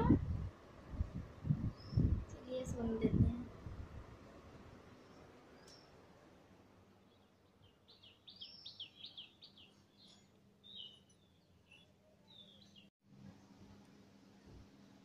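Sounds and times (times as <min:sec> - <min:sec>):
bird chirping: 0:07.0 - 0:12.9.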